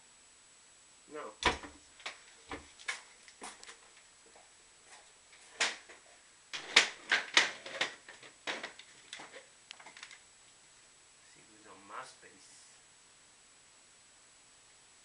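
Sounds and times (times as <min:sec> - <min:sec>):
knocks and clatters on desk: 0:06.6 - 0:10.1.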